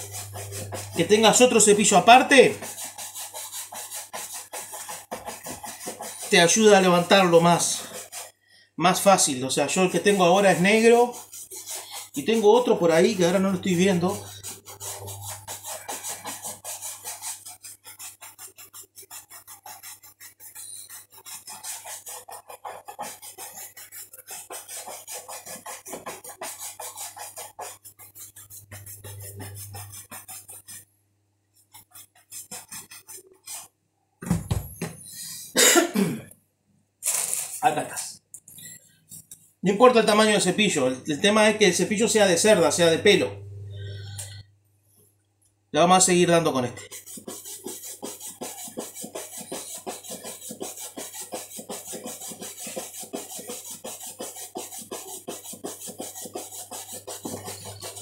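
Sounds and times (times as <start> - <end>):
shoe brush buffing leather: 0.0 - 8.3, 9.0 - 30.8, 31.7 - 33.7, 46.9 - 58.0
heavy thump: 34.2 - 34.9.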